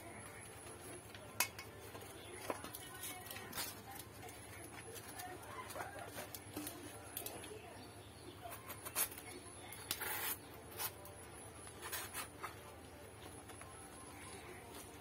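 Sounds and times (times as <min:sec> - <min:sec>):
banana leaf rustling and crackling: 0:00.4 - 0:07.6, 0:08.4 - 0:15.0.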